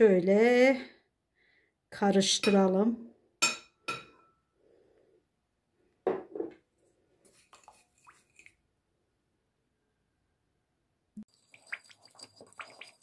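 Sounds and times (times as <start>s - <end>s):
glass clinking: 3.4s - 4.4s
wooden spoon scraping glass bowl: 11.3s - 13.0s.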